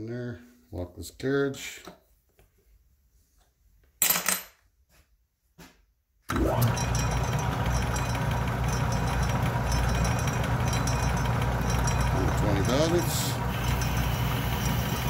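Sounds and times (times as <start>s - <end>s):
lathe motor humming: 6.3s - 15.0s.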